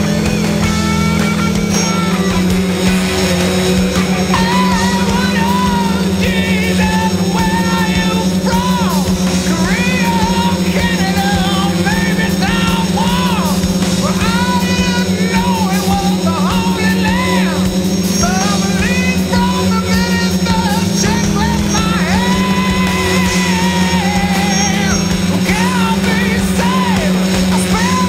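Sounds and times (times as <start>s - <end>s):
drone motors humming: 0.0s - 28.0s
rock music with singing: 0.0s - 28.0s.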